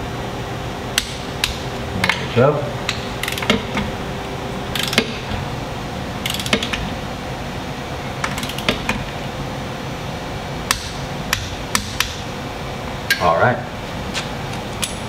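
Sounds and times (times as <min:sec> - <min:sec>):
socket wrench ratchet clicking: 0:03.2 - 0:03.6, 0:04.8 - 0:05.0, 0:06.2 - 0:06.7, 0:08.3 - 0:08.7.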